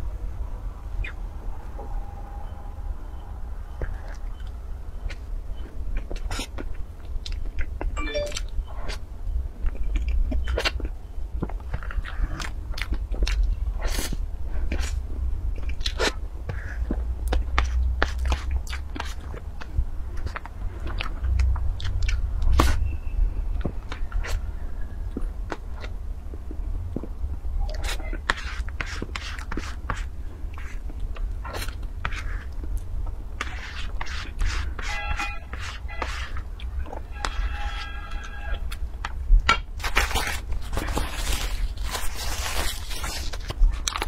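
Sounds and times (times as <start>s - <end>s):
mouth smacks and chewing: 9.6s - 22.8s, 42.4s - 44.0s
metal spoon scraping cream: 33.4s - 36.4s.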